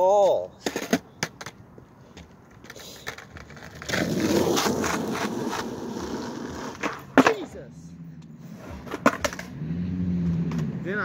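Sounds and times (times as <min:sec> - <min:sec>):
skateboard wheels rolling on asphalt: 0:00.6 - 0:07.5, 0:08.5 - 0:10.8
skateboard clacks: 0:08.8 - 0:09.5.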